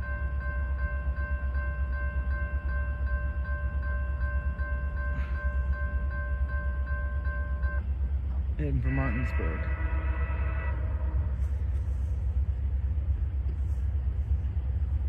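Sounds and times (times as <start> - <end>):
crossing bell ringing: 0.0 - 7.9, 8.7 - 11.3
steady low rumble: 0.0 - 15.0.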